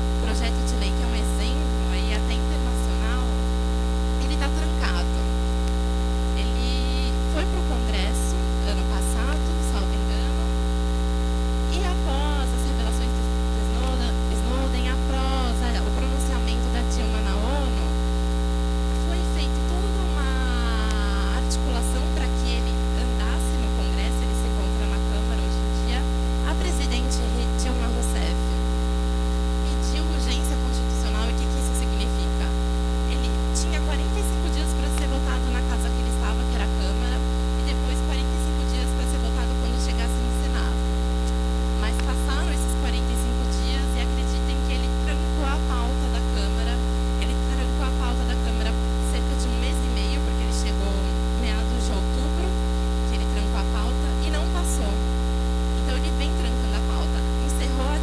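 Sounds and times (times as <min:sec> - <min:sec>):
electrical mains hum: 0:00.0 - 0:58.0
faint voice: 0:06.4 - 0:10.5, 0:19.0 - 0:28.6.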